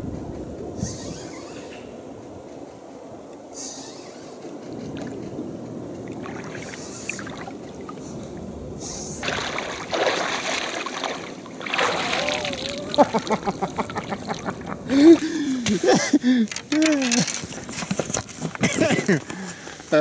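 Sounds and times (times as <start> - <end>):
shallow water splashing: 6.0 - 8.4, 9.2 - 15.2.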